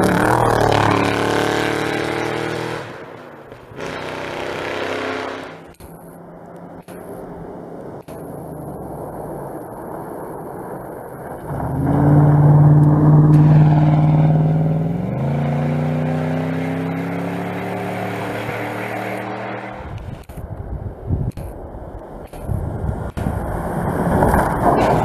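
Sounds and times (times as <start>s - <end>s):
pickup truck engine passing by: 8.5s - 20.0s.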